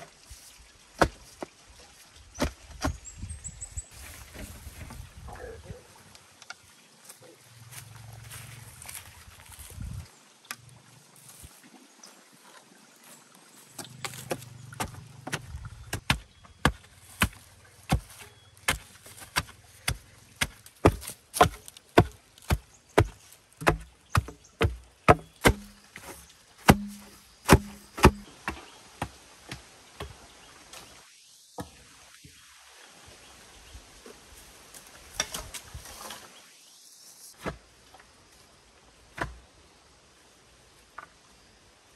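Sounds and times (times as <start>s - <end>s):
hand tool striking bamboo: 13.8s - 30.2s.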